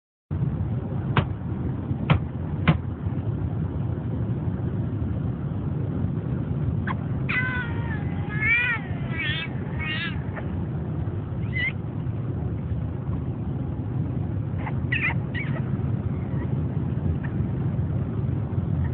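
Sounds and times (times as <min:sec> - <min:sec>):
low car cabin rumble: 0:00.3 - 0:18.9
small dog whining: 0:06.8 - 0:10.6, 0:11.4 - 0:11.8, 0:14.6 - 0:17.4.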